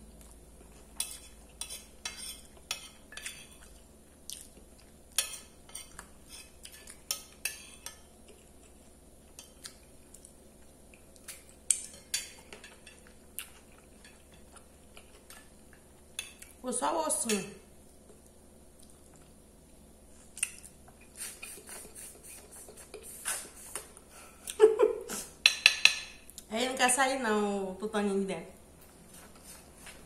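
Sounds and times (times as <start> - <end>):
cutlery clinking on a plate: 25.4 - 26.2.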